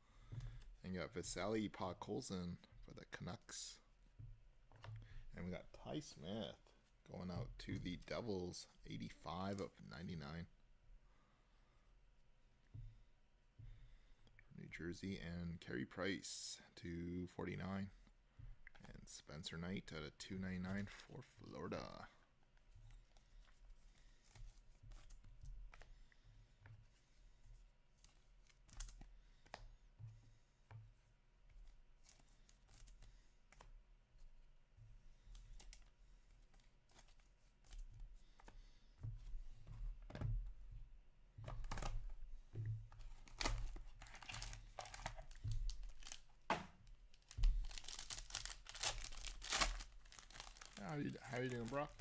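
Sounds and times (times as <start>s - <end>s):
trading cards rustling and clicking: 28.0s - 29.7s, 31.5s - 33.8s, 35.2s - 38.7s, 41.4s - 52.0s
foil wrapper crinkling and tearing: 43.2s - 46.2s, 47.1s - 52.0s.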